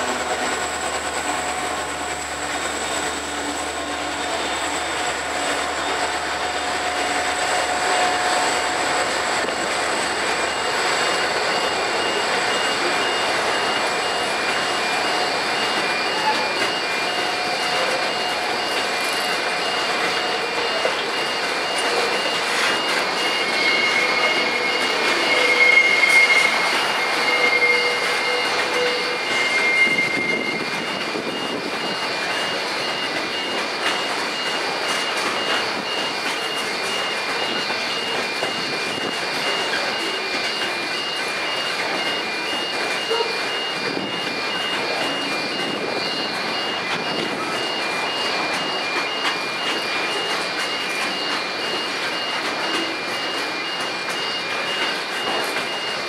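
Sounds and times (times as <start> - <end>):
train wheels rumbling on rails: 0.0 - 56.0
wheel squeal: 0.0 - 56.0.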